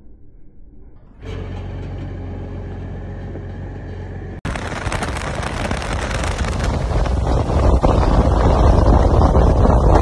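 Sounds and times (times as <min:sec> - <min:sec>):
truck driving noise: 0:01.2 - 0:10.0
wind buffeting microphone: 0:04.5 - 0:10.0.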